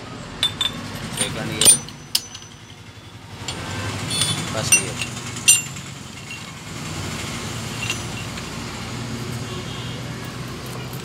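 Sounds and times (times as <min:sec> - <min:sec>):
low vehicle hum: 0:00.0 - 0:11.0
metallic gear clink: 0:00.4 - 0:03.0, 0:04.1 - 0:06.7, 0:07.6 - 0:08.6.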